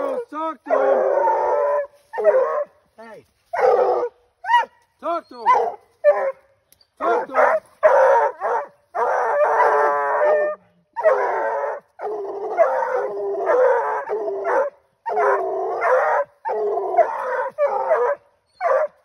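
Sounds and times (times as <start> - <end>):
dogs howling: 0.0 - 2.7, 3.6 - 4.7, 5.4 - 6.4, 7.0 - 19.0
dogs barking: 0.0 - 2.8, 3.5 - 4.8, 5.4 - 19.0.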